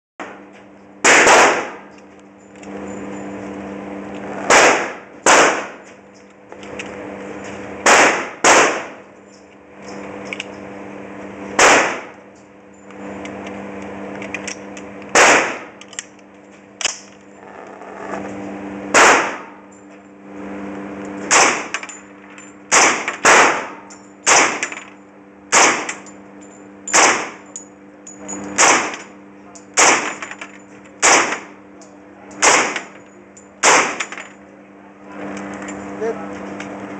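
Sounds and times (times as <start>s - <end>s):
steady hum: 0.2s - 36.9s
gunshots echoing indoors: 1.0s - 1.8s, 4.5s - 5.8s, 7.8s - 9.0s, 11.6s - 12.1s, 18.9s - 19.6s.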